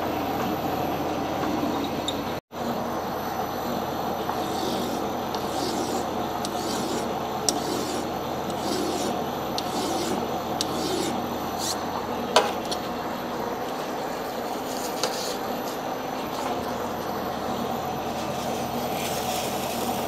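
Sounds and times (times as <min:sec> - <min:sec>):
metal lathe humming: 0:03.6 - 0:12.3
rasping file strokes: 0:04.3 - 0:11.8.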